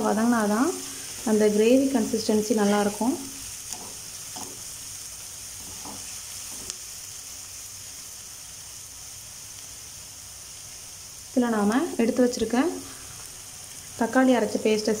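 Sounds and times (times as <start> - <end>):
onions sizzling in hot oil: 0.0 - 15.0
spatula scraping pan: 3.7 - 4.7, 5.6 - 6.8.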